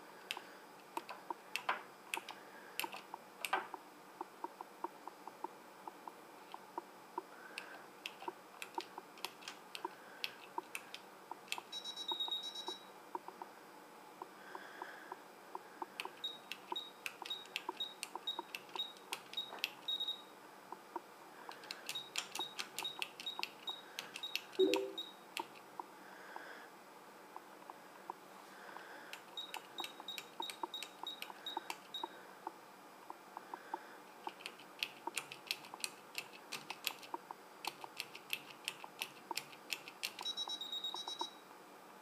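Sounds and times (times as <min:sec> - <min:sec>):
short high beeps: 0:11.7 - 0:12.9, 0:24.6 - 0:25.2, 0:40.2 - 0:41.4
keypad keys clicking: 0:21.5 - 0:25.6, 0:29.4 - 0:31.8, 0:34.3 - 0:40.3
faint regular ticking: 0:28.1 - 0:40.3.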